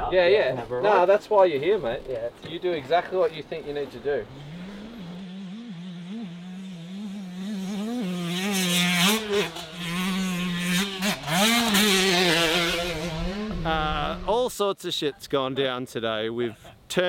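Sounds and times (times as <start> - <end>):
dirt bike engine revving: 3.9 - 14.3.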